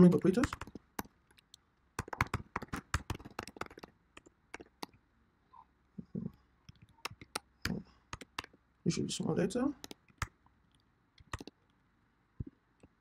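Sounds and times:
computer keyboard keys clicking: 0:00.4 - 0:05.0, 0:06.7 - 0:08.6, 0:09.8 - 0:10.4, 0:11.2 - 0:11.6.

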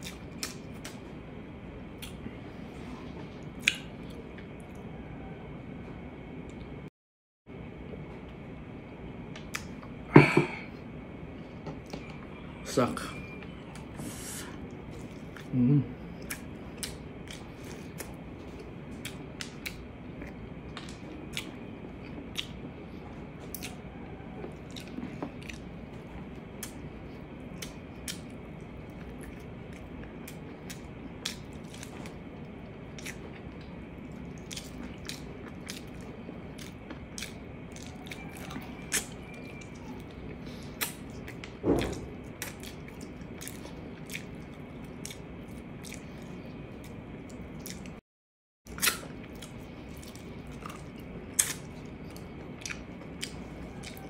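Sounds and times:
close chewing: 0:14.5 - 0:48.0, 0:48.7 - 0:54.0
thump: 0:41.6 - 0:42.0.

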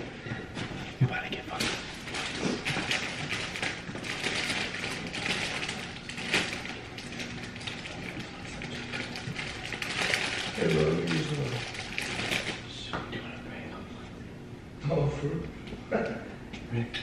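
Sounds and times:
plastic bag rustling and crinkling: 0:01.5 - 0:12.7.

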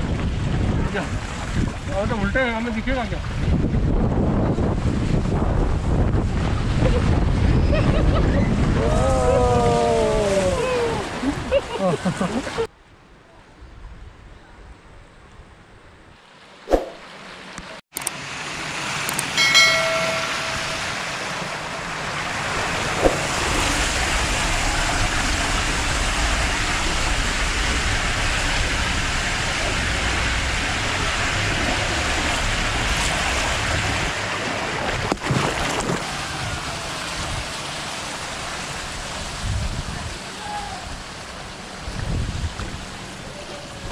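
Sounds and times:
water rushing down a tube slide: 0:00.0 - 0:12.7, 0:18.2 - 0:43.9
short high tone: 0:19.4 - 0:21.4
splash into a pool: 0:21.1 - 0:39.4.

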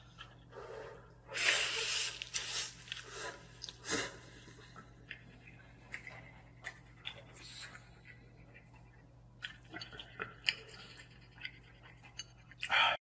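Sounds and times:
man chewing noodles: 0:00.0 - 0:12.9
faint steady hum: 0:00.0 - 0:13.0
breathing: 0:00.5 - 0:01.1, 0:12.6 - 0:13.0.

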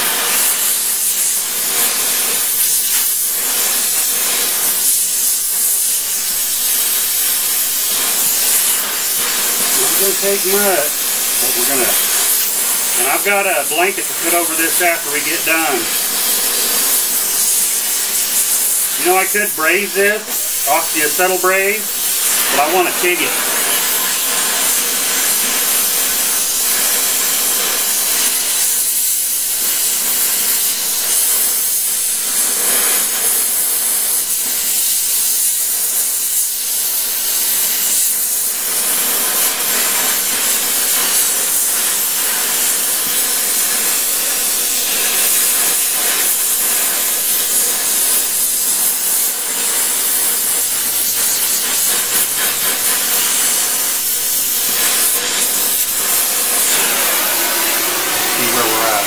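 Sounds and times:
torch flame hissing: 0:00.0 - 0:59.0.

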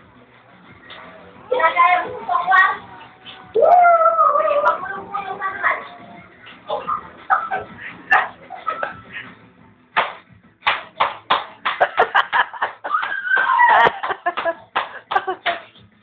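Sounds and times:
rhythmic hand clapping: 0:09.9 - 0:16.0.

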